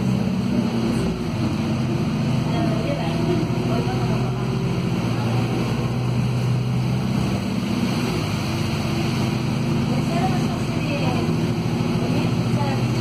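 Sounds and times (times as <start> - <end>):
bus drivetrain drone: 0.0 - 13.0
tyres hissing on wet road: 0.0 - 13.0.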